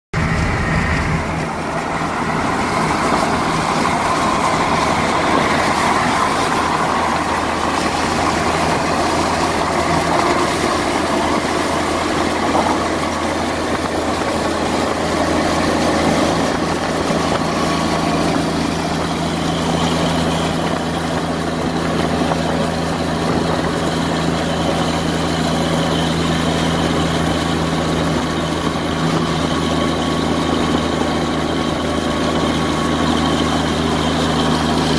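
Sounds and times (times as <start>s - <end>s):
car engine drone: 0.1s - 34.9s
tyres and wind rushing: 0.1s - 34.9s.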